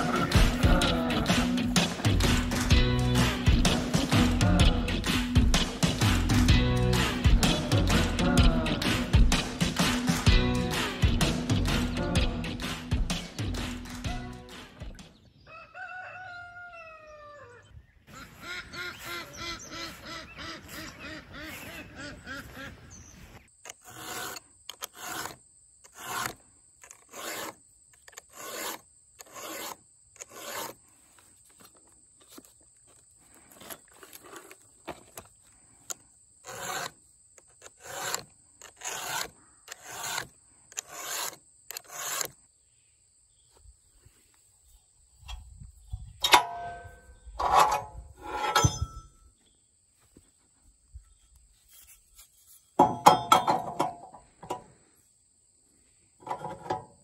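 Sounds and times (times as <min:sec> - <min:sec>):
file rasping on chainsaw chain: 0:23.6 - 0:30.8, 0:36.4 - 0:42.4
metallic clanks: 0:46.2 - 0:49.2, 0:52.8 - 0:54.7.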